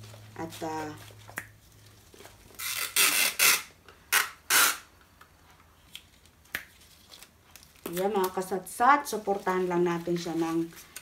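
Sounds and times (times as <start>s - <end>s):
adhesive tape ripping off roll: 2.5s - 4.9s.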